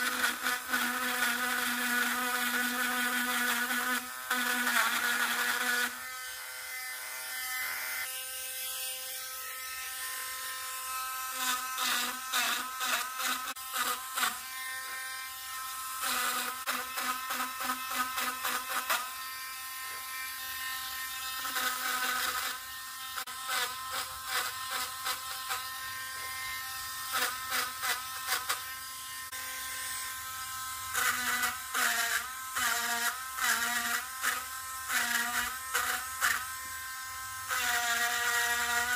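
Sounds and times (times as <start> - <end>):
rotary tool engraving wood: 0.0 - 38.9.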